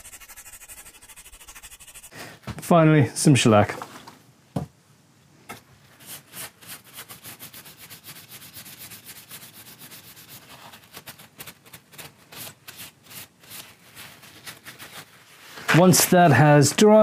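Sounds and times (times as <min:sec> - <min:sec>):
cloth pad rubbing wood: 0:00.0 - 0:02.2.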